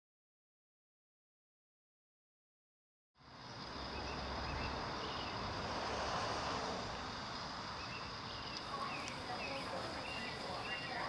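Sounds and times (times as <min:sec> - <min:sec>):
outdoor background rumble and hiss: 0:03.2 - 0:11.0.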